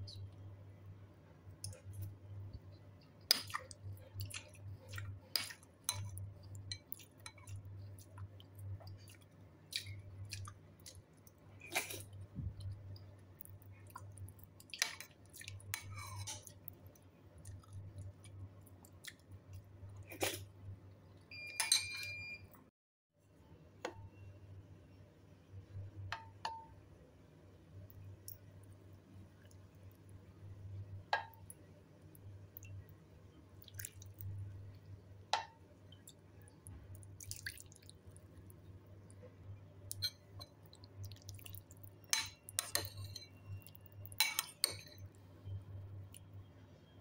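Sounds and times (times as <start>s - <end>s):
person chewing: 3.0s - 16.7s, 17.4s - 20.5s, 37.0s - 38.5s, 39.9s - 42.9s.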